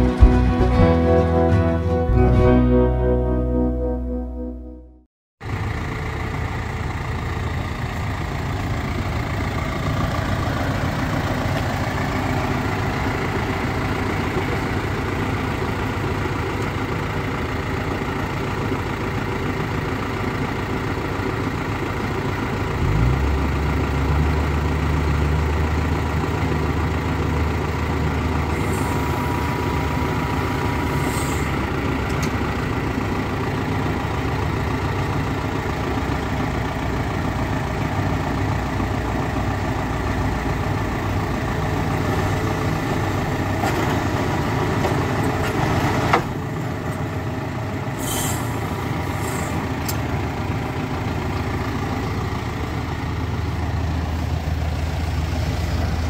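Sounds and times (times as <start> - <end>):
tractor diesel engine idling: 0.0 - 4.1, 5.4 - 56.0
deeper louder hum: 0.0 - 5.1.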